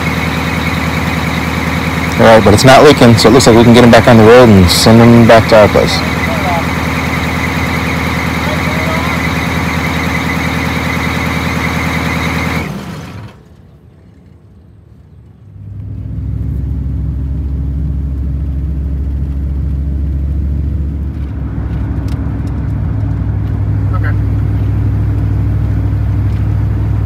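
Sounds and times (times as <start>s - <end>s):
bus engine idling: 0.0s - 27.0s
squeaky belt squeal: 6.0s - 12.6s
car driving rumble from inside: 15.2s - 27.0s.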